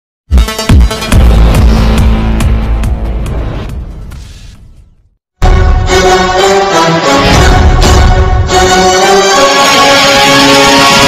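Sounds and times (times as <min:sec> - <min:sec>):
electronic music with heavy bass: 0:00.3 - 0:04.0.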